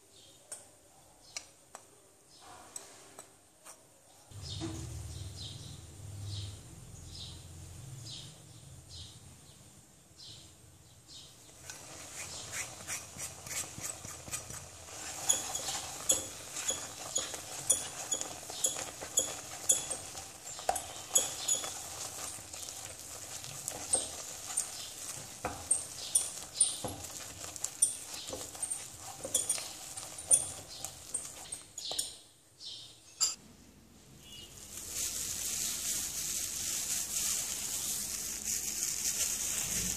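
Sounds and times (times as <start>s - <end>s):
spatula scraping and knocking pan: 11.6s - 32.2s.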